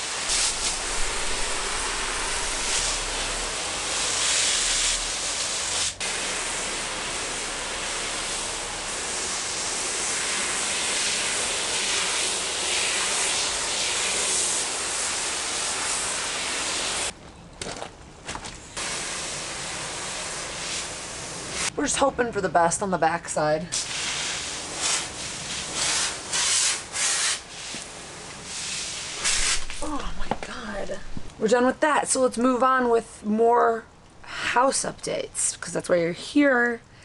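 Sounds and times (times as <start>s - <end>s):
hose spray hissing on wet rug: 0.0s - 17.1s, 18.8s - 21.8s, 23.7s - 30.0s.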